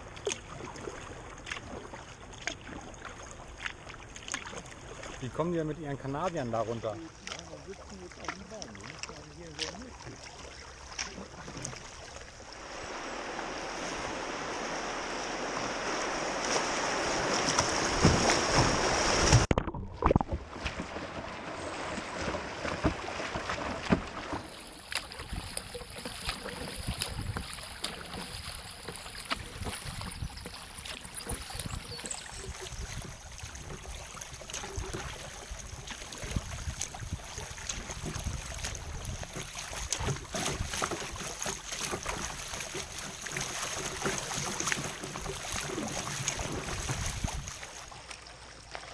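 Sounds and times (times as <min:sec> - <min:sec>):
paddle strokes in water: 0:00.0 - 0:48.9
water rushing and splashing: 0:00.0 - 0:48.9.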